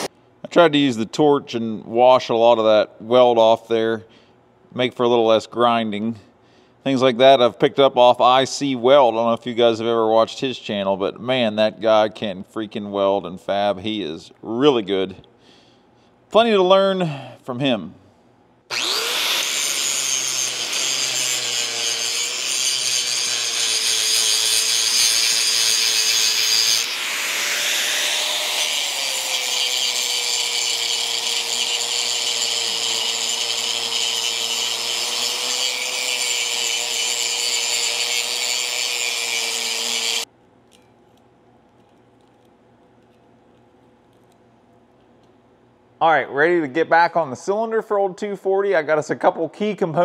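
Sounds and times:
angle grinder grinding steel: 0:18.7 - 0:40.3.

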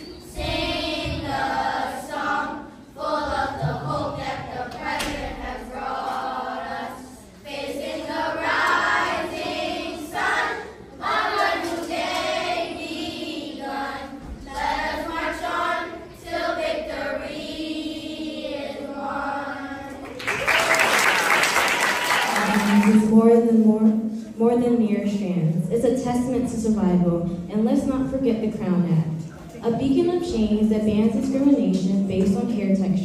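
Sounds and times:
choir singing: 0:00.0 - 0:20.0.

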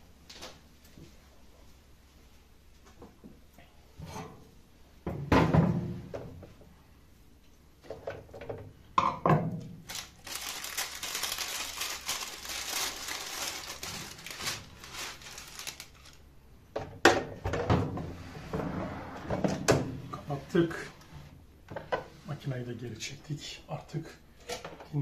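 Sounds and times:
baking parchment crinkling: 0:09.8 - 0:16.3.

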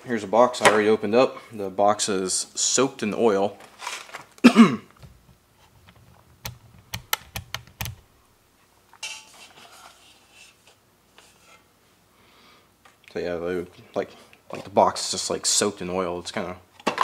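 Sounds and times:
soft rustle: 0:08.5 - 0:12.1.

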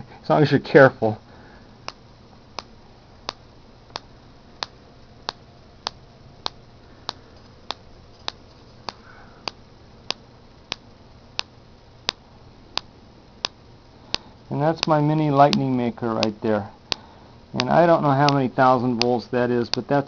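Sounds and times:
electric sparks snapping: 0:12.8 - 0:19.8.

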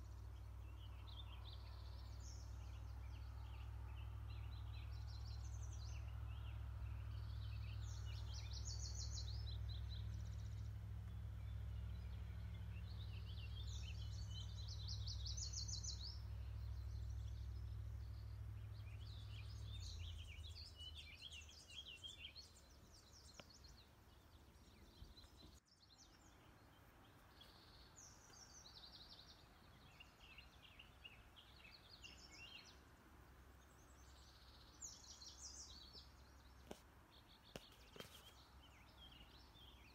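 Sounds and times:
low steady rumble: 0:00.0 - 0:25.6
songbirds chirping and trilling: 0:00.0 - 0:39.9.

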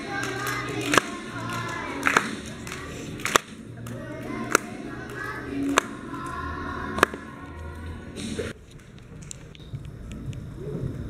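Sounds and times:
children singing together: 0:00.0 - 0:03.3, 0:03.9 - 0:08.2
sharp hand claps: 0:00.0 - 0:06.0.

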